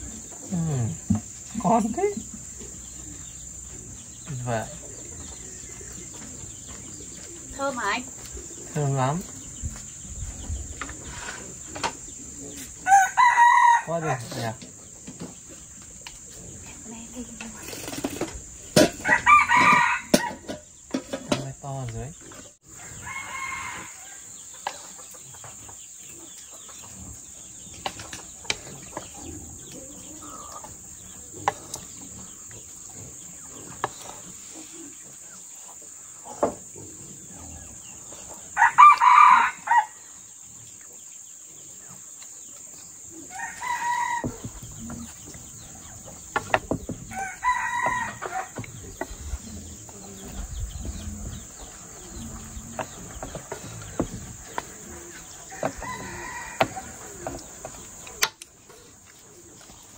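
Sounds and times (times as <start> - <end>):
rooster crowing: 12.8 - 14.2, 19.0 - 20.4, 22.7 - 24.4, 38.5 - 40.0, 43.3 - 44.5, 47.1 - 48.7, 55.5 - 57.3.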